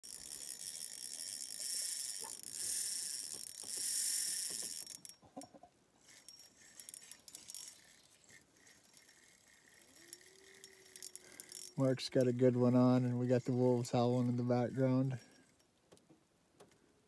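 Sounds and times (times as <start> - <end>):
fishing reel clicks: 0.0 - 5.2, 6.0 - 14.4
fishing reel drag buzzing: 0.0 - 5.2, 6.0 - 14.4.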